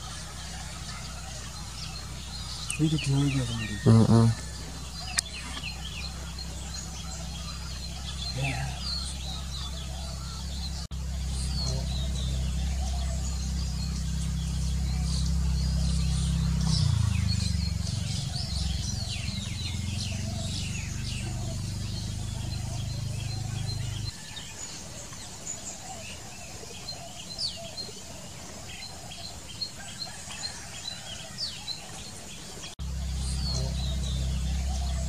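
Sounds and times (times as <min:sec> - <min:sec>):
steady low rumble: 0:00.0 - 0:24.1, 0:32.7 - 0:35.0
birds chirping: 0:00.0 - 0:35.0.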